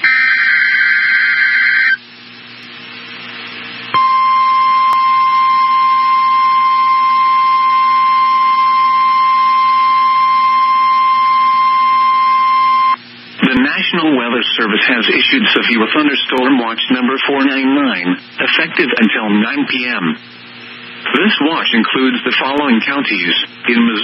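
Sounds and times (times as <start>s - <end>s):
steady alarm tone: 0.0s - 2.0s, 4.0s - 13.0s
radio hiss: 13.0s - 24.0s.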